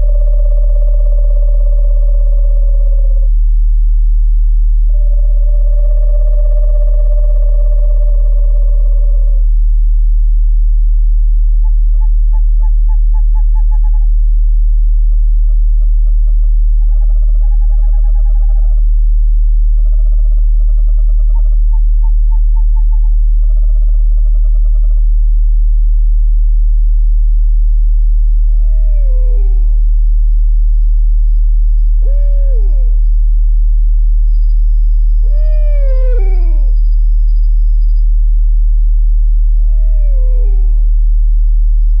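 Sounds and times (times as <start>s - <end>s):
owl trilling: 0.0s - 3.3s, 4.9s - 9.5s, 11.5s - 14.2s, 15.1s - 18.9s, 19.7s - 25.1s, 28.4s - 30.0s, 31.8s - 33.3s, 34.1s - 38.1s, 39.5s - 41.0s
deep steady tone: 0.0s - 42.0s.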